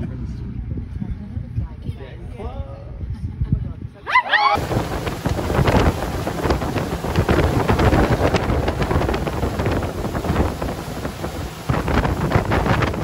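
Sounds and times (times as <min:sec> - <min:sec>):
motorboat low rumble: 0:00.0 - 0:13.0
wind buffeting microphone: 0:00.0 - 0:13.0
water spray splashing: 0:04.6 - 0:13.0.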